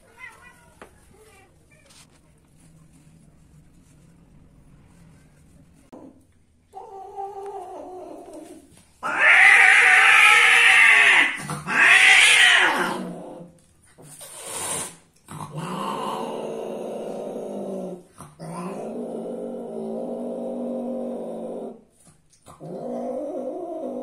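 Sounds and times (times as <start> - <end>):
cat growling low: 5.9 - 24.0
cat hissing: 9.0 - 13.2, 14.0 - 16.3
cat yowling: 9.0 - 13.2.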